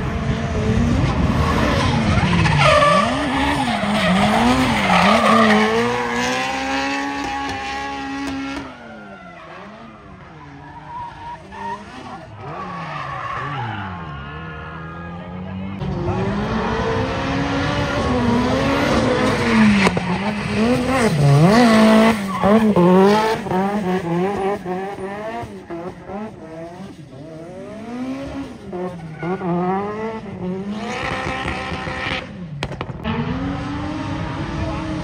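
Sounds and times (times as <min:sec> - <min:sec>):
car engine revving hard: 0:00.0 - 0:08.8, 0:15.8 - 0:32.3.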